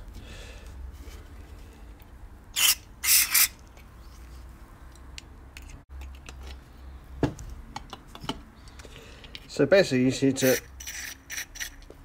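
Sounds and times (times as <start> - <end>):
parts clicking and knocking: 4.9 - 6.6, 7.2 - 9.5.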